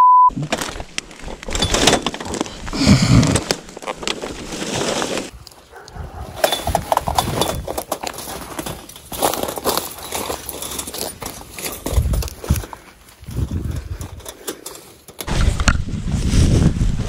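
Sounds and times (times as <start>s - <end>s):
people scuffling and rustling: 2.3s - 15.1s
gate knocking and clanking: 6.3s - 9.1s.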